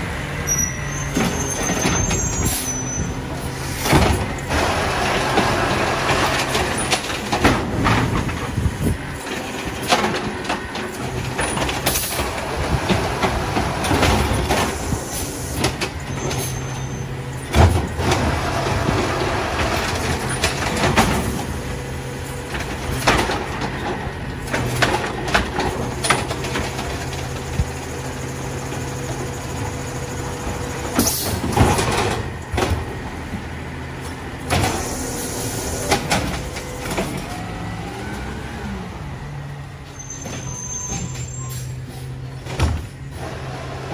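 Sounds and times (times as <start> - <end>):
garbage truck engine running: 0.0 - 43.9
hydraulic arm lifting: 0.4 - 43.9
cart banging against hopper: 3.4 - 16.8, 17.4 - 27.8, 30.5 - 37.5, 41.9 - 43.9.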